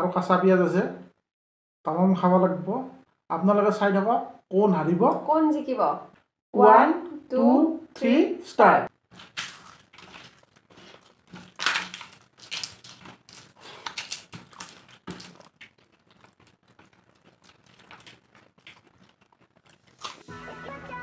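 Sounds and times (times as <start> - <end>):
crisp crunching while chewing: 9.0 - 20.3
soft squelching of food: 9.0 - 20.3.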